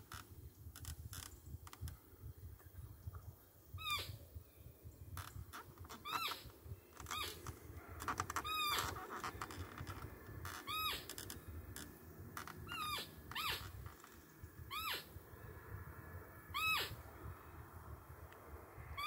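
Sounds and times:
roe deer high-pitched whistles: 12.7s - 13.7s, 14.7s - 15.1s, 16.6s - 17.0s.

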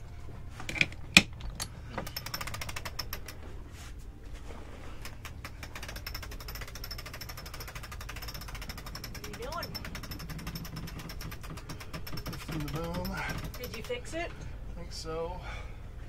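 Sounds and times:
winch ratcheting clicks: 0.7s - 3.5s, 5.0s - 14.5s
sharp knocks: 5.1s - 14.1s.

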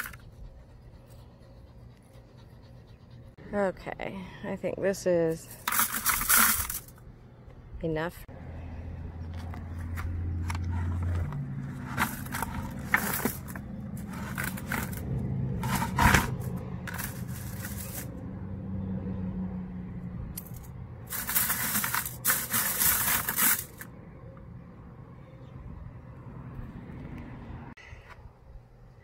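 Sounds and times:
dry pods rustling in a plastic bucket: 5.4s - 6.9s, 10.4s - 18.2s, 21.1s - 23.9s.

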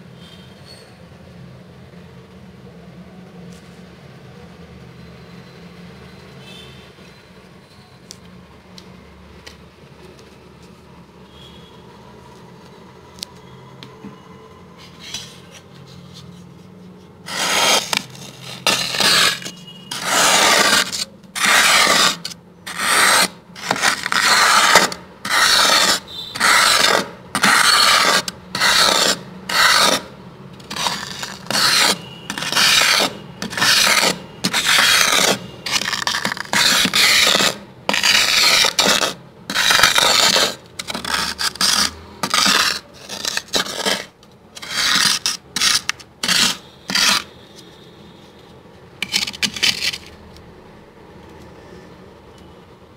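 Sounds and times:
plastic scraper rasping frost: 17.2s - 47.3s, 49.0s - 50.2s.

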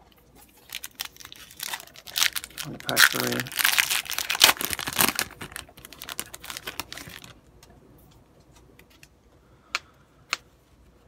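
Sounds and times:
foil wrapper crinkling and tearing: 0.4s - 7.4s.

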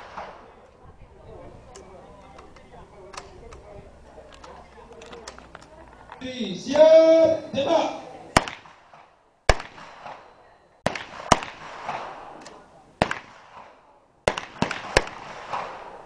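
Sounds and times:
submachine gun single shots: 8.4s - 12.4s, 13.0s - 16.0s.

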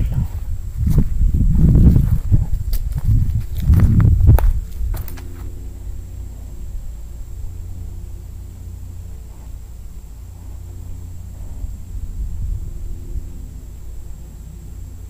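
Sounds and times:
distant engine rumble: 0.0s - 15.0s
knocks and rustles: 0.9s - 5.5s.

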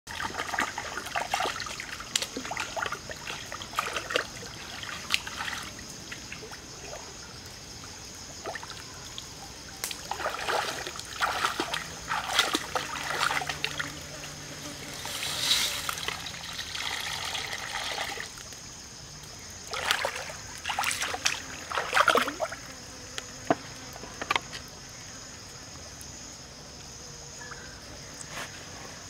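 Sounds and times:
hands splashing in stream water: 0.1s - 7.0s, 9.8s - 13.9s, 14.9s - 18.5s, 19.7s - 22.6s
wading splashes: 0.1s - 7.4s, 8.2s - 18.5s, 19.6s - 22.7s
stream flowing: 0.1s - 22.8s.

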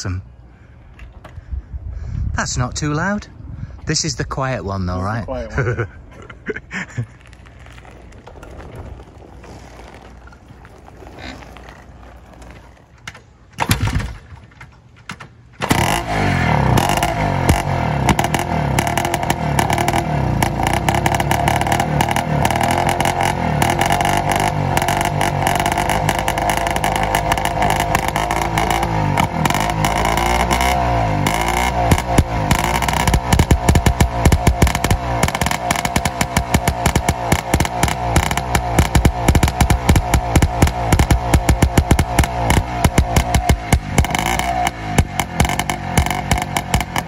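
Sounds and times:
two-stroke motorcycle engine running: 15.6s - 47.0s.

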